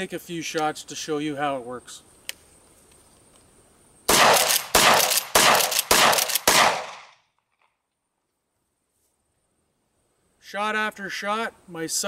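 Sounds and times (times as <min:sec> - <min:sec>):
shotgun shots: 0:04.1 - 0:07.2.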